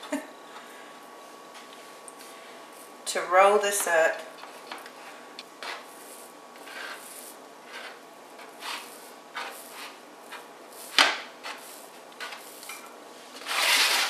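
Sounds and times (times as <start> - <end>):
dough rubbing and rustling: 4.4 - 14.0.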